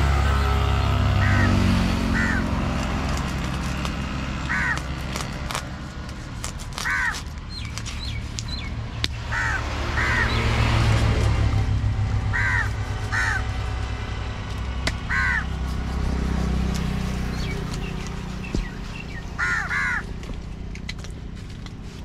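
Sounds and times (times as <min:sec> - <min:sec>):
crows cawing: 0:00.4 - 0:02.8, 0:04.4 - 0:05.0, 0:06.8 - 0:07.2, 0:09.2 - 0:10.4, 0:12.3 - 0:13.6, 0:15.0 - 0:15.5, 0:18.6 - 0:20.2.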